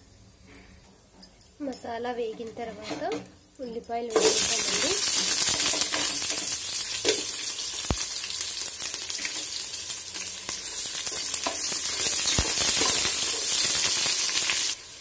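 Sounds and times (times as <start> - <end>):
onions frying in hot oil: 4.1 - 15.0.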